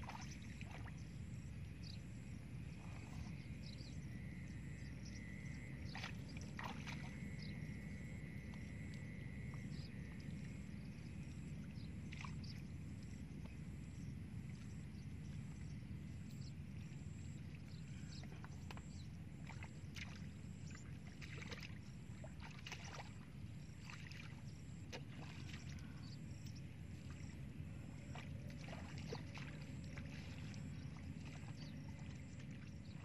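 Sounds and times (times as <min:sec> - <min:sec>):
footsteps splashing through water: 0:00.0 - 0:00.9, 0:05.9 - 0:07.2, 0:18.2 - 0:20.3, 0:21.0 - 0:26.2, 0:28.0 - 0:32.8.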